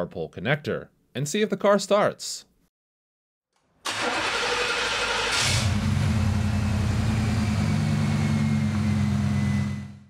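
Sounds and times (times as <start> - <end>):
starter motor cranking: 3.9 - 5.8
car engine revving and idling: 4.4 - 10.0.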